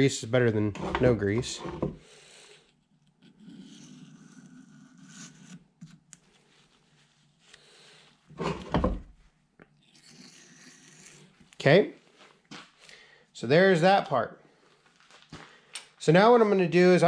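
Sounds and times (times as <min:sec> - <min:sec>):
razor blade scraping metal: 0:03.3 - 0:05.6, 0:09.9 - 0:11.3.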